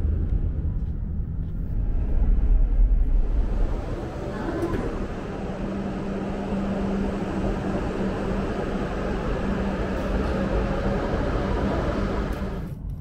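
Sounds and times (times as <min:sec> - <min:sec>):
train running with rushing hiss: 0:03.1 - 0:12.8.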